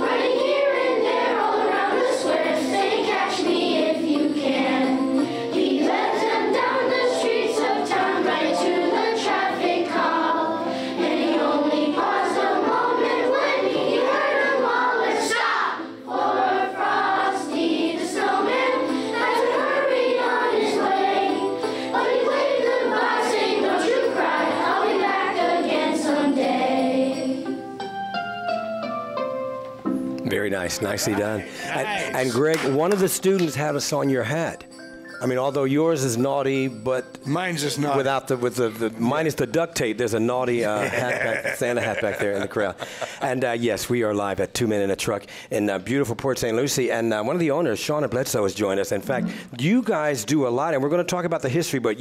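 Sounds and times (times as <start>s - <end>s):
children's choir singing: 0.0s - 27.6s
musical accompaniment: 0.0s - 43.3s.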